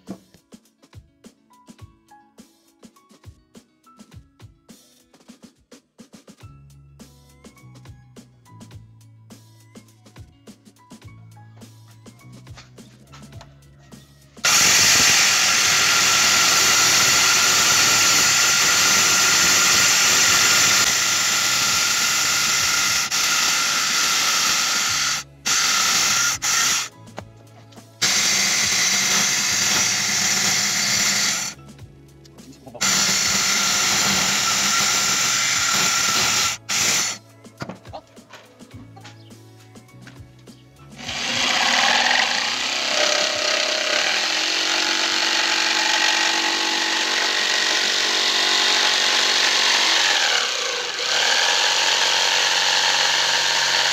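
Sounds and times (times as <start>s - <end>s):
circular saw cutting wood: 14.4s - 26.9s, 28.0s - 31.6s, 32.8s - 37.2s, 41.0s - 53.9s.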